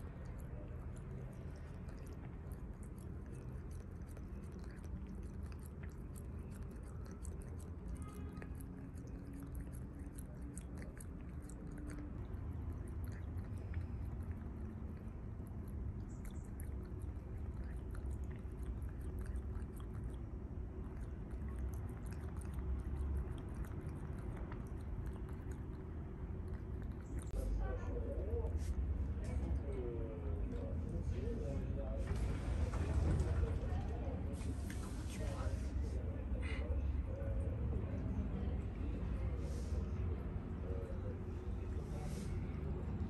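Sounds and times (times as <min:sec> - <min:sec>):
cat lapping water: 0:00.0 - 0:28.5, 0:37.0 - 0:43.0.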